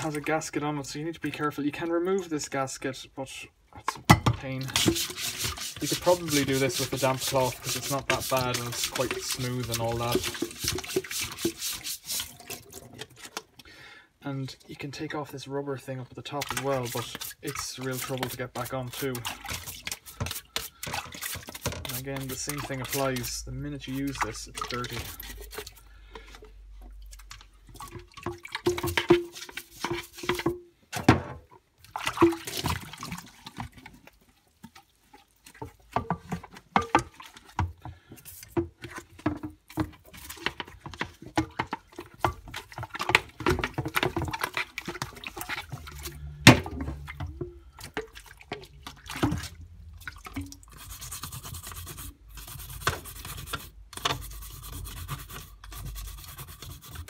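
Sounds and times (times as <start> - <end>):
wet rubbing: 4.6 - 13.6, 16.3 - 30.6, 31.8 - 57.0
plastic parts knocking and clattering: 20.1 - 22.8, 27.3 - 34.0, 35.6 - 49.6
water dripping: 31.6 - 36.2, 47.0 - 50.8.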